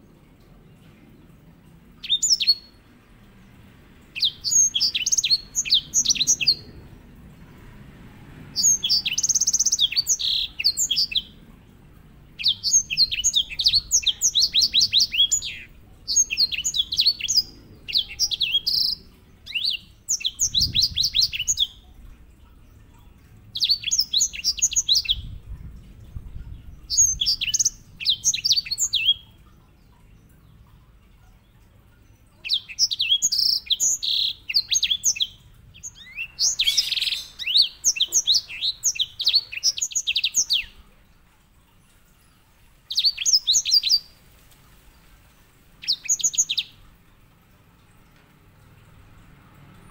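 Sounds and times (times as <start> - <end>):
finch singing high trilled notes: 32.4 - 40.8.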